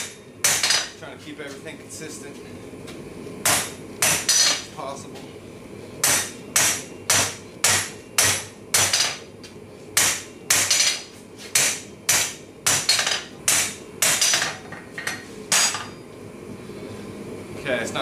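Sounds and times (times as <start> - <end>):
hammer striking metal on anvil: 3.4 - 4.6, 6.0 - 9.2, 10.0 - 11.0, 11.6 - 14.6.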